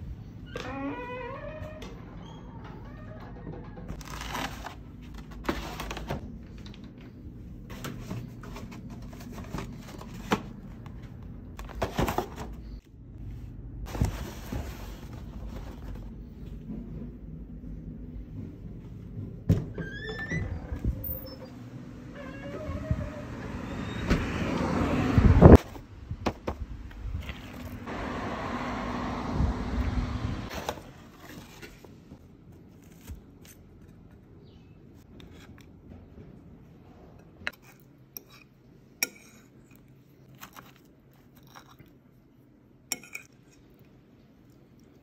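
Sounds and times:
fork scraping ceramic plate: 37.5 - 39.8, 42.9 - 43.6.

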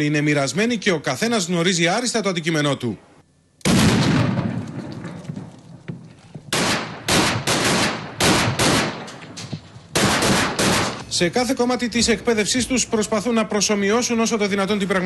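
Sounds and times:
gunshots echoing: 3.6 - 5.9, 6.5 - 11.0.

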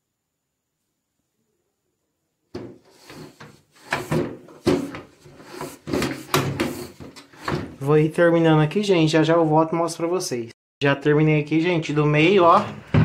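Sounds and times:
cloth wiping shutter slats: 2.6 - 7.8.

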